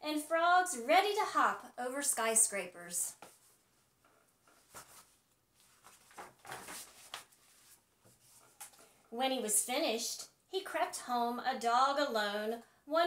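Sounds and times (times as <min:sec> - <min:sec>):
soft paper crinkles and taps: 0:03.2 - 0:08.9
book pages turning: 0:04.4 - 0:08.8.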